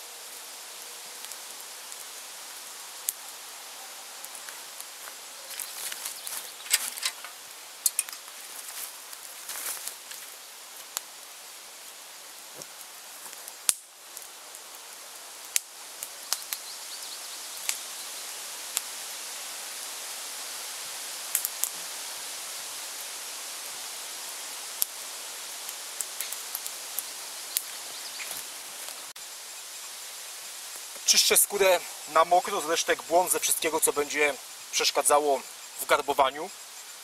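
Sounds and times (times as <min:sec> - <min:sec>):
campfire crackling and popping: 0:00.3 - 0:37.0
footsteps on dry leaf litter: 0:04.4 - 0:07.4, 0:08.2 - 0:10.4.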